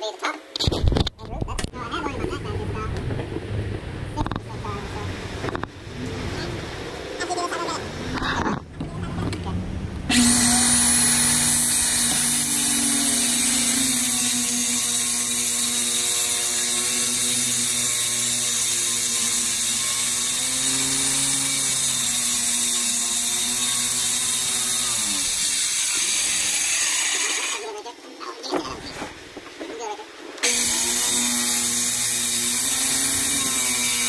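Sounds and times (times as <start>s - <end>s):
circular saw cutting plywood: 10.1s - 27.7s, 30.4s - 34.0s.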